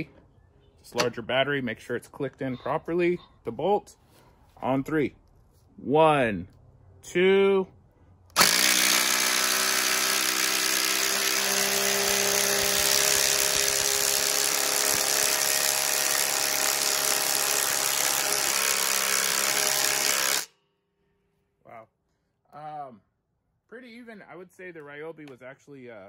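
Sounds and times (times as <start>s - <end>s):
impact driver rattling buzz: 8.3s - 20.5s.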